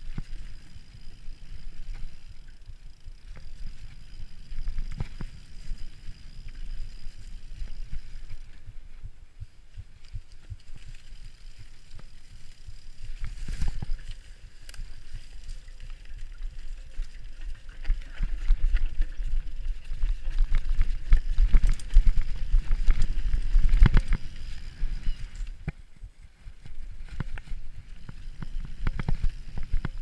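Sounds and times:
wind rumble on microphone: 0:00.0 - 0:30.0
bike knocks and rattles: 0:16.2 - 0:25.8.

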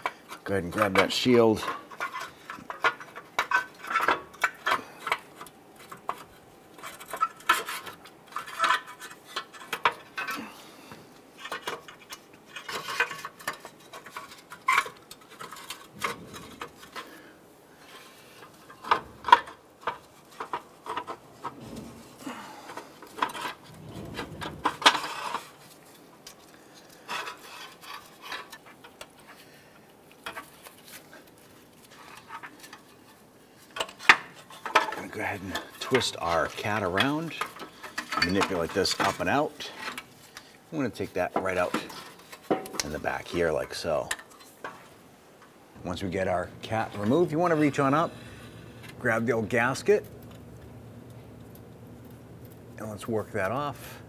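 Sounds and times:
metal heat shield rattling: 0:11.4 - 0:26.4, 0:33.7 - 0:54.0.

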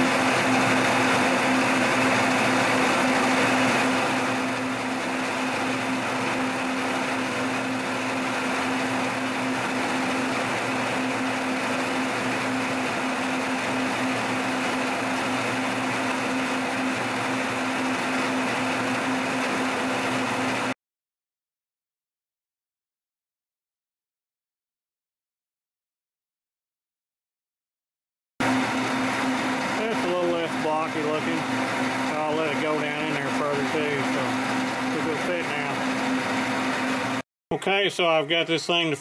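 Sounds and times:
milling machine motor hum: 0:00.0 - 0:20.7, 0:28.4 - 0:37.2.

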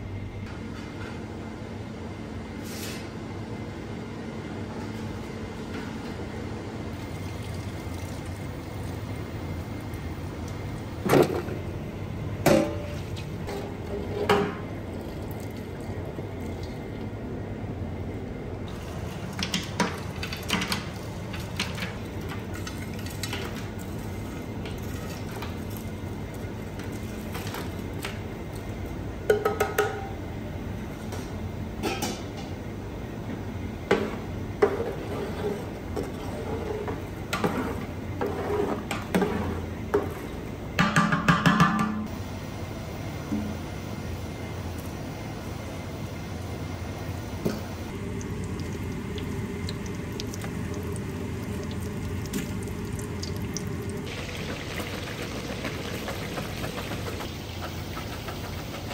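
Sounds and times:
steady low hum: 0:00.0 - 0:40.9, 0:41.9 - 0:58.9.

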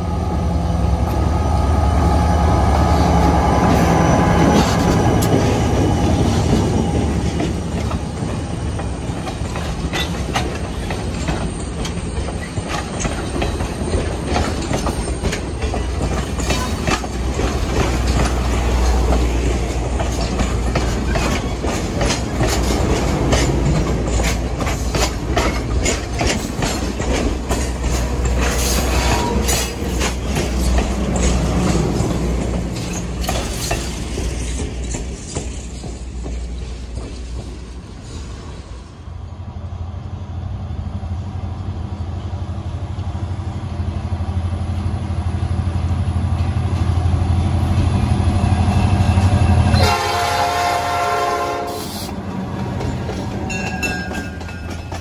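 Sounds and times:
locomotive engine droning: 0:00.0 - 0:37.9, 0:38.5 - 0:55.0
train cars rumbling: 0:00.0 - 0:55.0
wheels clicking over rail joints: 0:03.2 - 0:38.1, 0:51.9 - 0:55.0.

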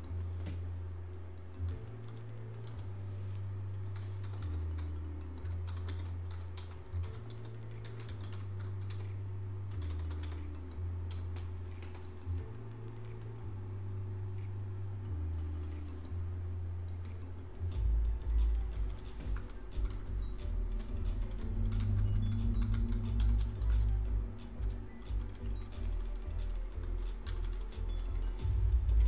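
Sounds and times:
keyboard typing: 0:01.5 - 0:03.0, 0:03.7 - 0:13.6, 0:15.2 - 0:16.1, 0:17.0 - 0:29.0
low hum shifting pitch: 0:12.3 - 0:26.3.

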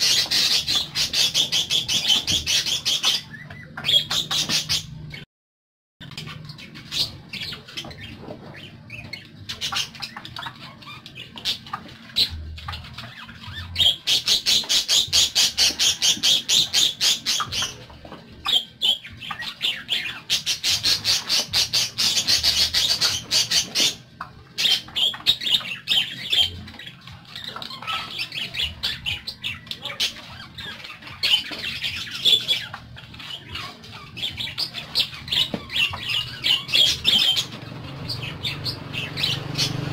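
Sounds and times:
budgerigars chattering and chirping: 0:00.0 - 0:05.2, 0:06.0 - 0:39.9.

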